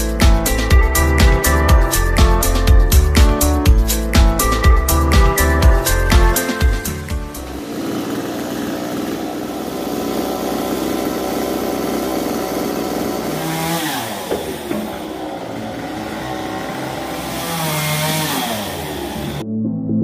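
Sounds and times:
chainsaw cutting wood: 0:06.1 - 0:19.4.

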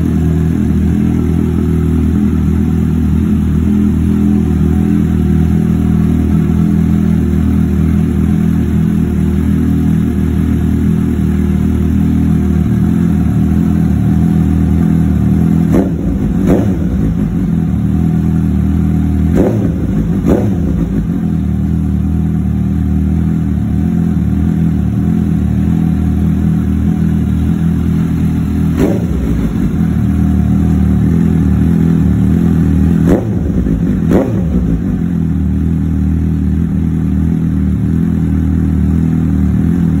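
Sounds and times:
motorcycle engine idling: 0:00.0 - 0:40.0
engine revving blips: 0:15.6 - 0:17.5, 0:19.3 - 0:21.2, 0:28.7 - 0:30.0, 0:32.9 - 0:35.0.

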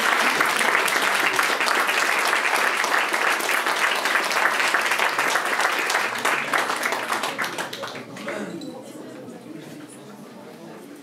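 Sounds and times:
audience applauding: 0:00.0 - 0:08.4.

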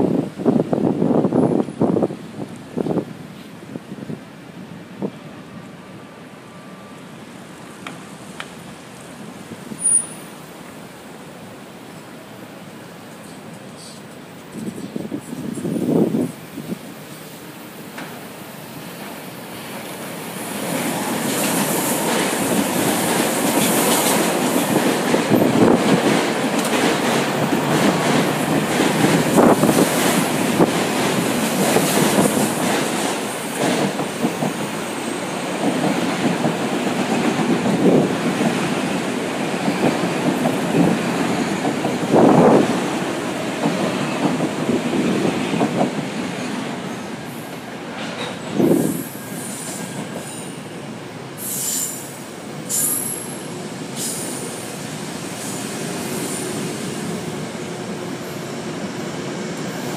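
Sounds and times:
train wheels rumbling on rails: 0:00.0 - 0:59.9
wheels clacking over rail joints: 0:20.6 - 0:46.8.

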